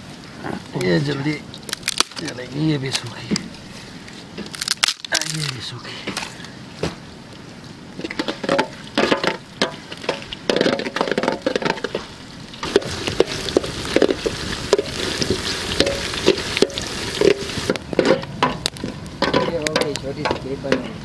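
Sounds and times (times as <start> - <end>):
onions sizzling in a pot: 9.9 - 18.0.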